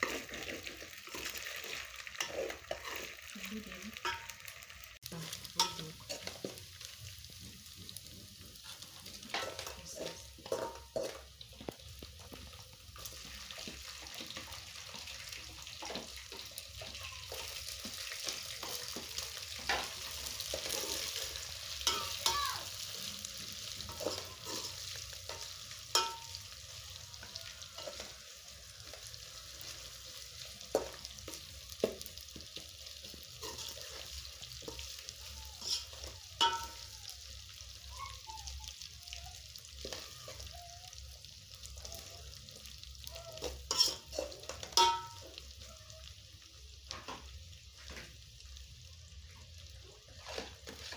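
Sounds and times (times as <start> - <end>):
spoon scraping a pot: 0.0 - 3.3, 23.6 - 26.4, 33.4 - 35.0, 35.6 - 36.8, 43.4 - 45.2
fish sizzling in a pot: 0.0 - 50.9.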